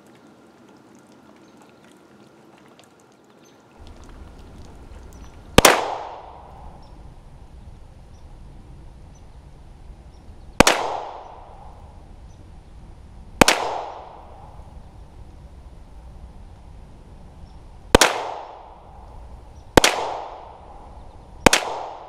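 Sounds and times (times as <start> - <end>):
pistol shots with echo: 5.5 - 6.9, 10.6 - 11.8, 13.4 - 14.6, 18.0 - 18.9, 19.8 - 22.0.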